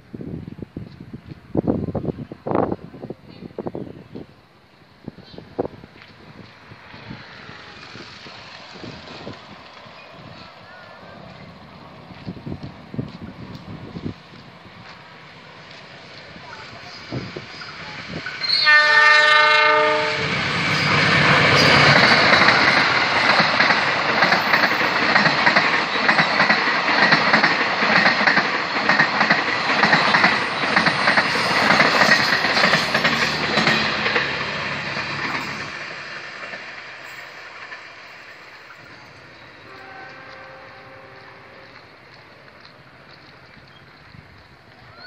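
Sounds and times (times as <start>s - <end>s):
locomotive horn: 18.4s - 21.0s, 39.6s - 41.9s
train wheels clattering: 20.1s - 44.9s.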